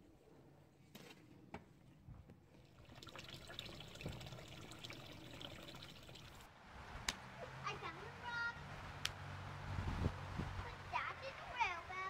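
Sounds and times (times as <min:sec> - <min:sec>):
water trickling into pond: 0:02.6 - 0:06.5.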